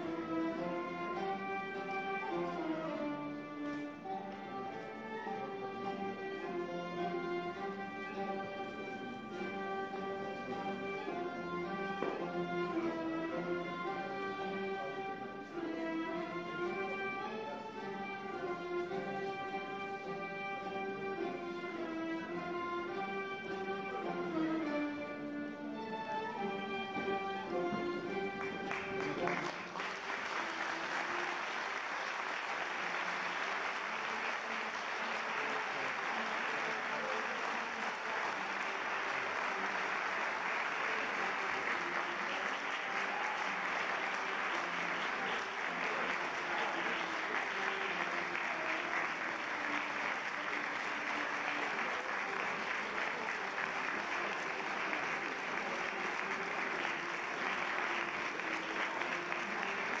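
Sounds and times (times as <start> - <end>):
audience applauding: 26.6 - 60.0.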